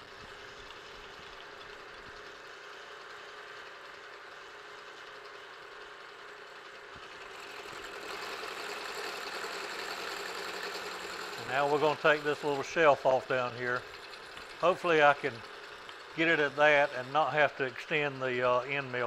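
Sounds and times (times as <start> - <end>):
milling machine running: 0.0 - 19.0
end mill cutting with hissing grind: 7.2 - 19.0.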